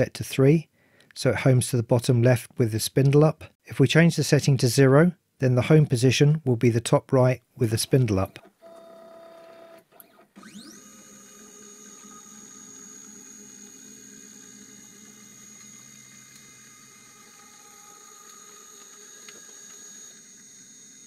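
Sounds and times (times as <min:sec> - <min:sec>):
stepper motors whining: 0:10.4 - 0:21.0.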